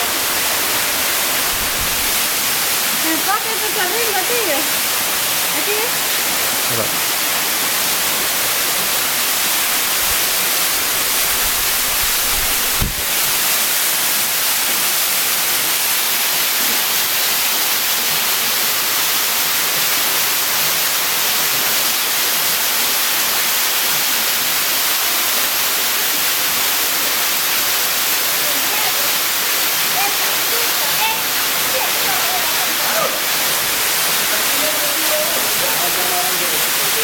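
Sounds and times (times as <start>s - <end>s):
waterfall pouring into pool: 0.0s - 37.0s
brief thump: 12.7s - 13.1s.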